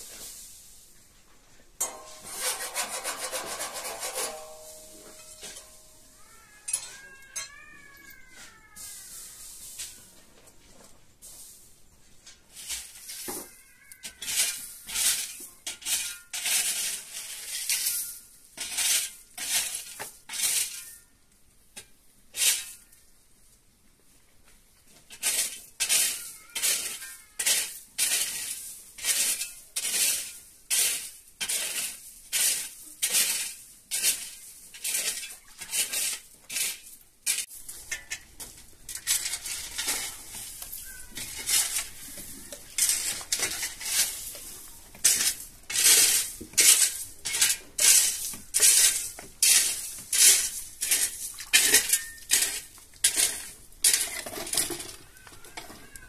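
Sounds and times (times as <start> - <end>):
rhythmic scraping strokes: 2.0 - 4.8.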